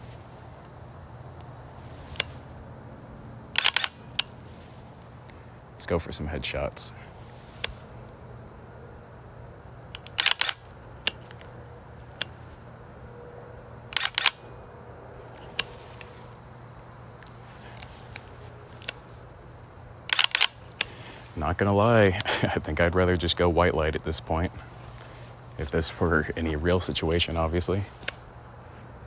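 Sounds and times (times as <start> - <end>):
faint low hum: 0.0 - 29.0
rifle shots: 3.6 - 4.0.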